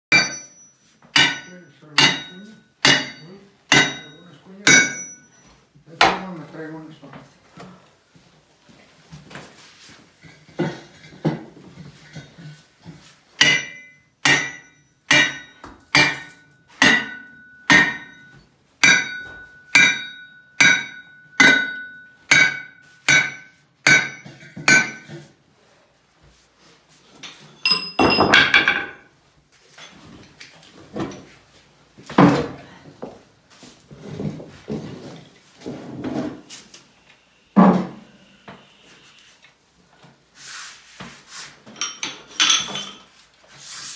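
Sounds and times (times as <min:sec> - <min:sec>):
sledgehammer striking steel: 0:00.1 - 0:05.3, 0:13.4 - 0:25.1.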